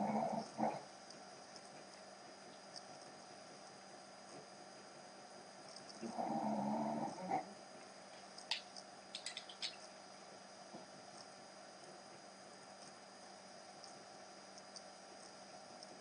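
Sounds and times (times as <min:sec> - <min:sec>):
low rough vocal groan: 0:00.0 - 0:00.8, 0:06.0 - 0:07.6
colored pencils clicking together: 0:09.2 - 0:09.8.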